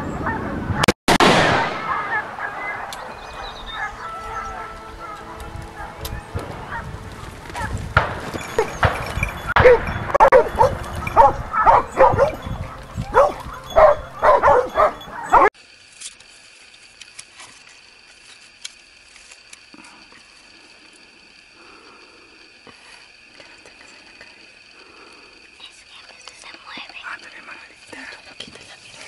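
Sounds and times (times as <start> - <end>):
dogs barking and yelping: 1.8 - 15.6
small ticks: 15.9 - 29.0.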